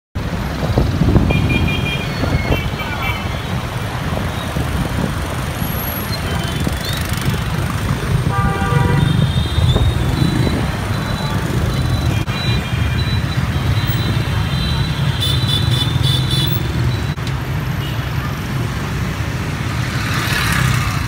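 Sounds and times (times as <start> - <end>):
scooter and motorbike traffic: 0.2 - 21.0
horn honking: 8.2 - 10.5.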